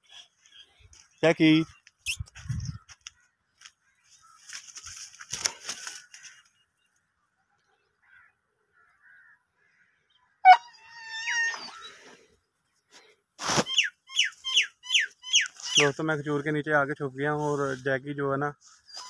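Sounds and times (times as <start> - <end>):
dog whining: 10.5 - 11.9
dog yelping: 10.5 - 12.0.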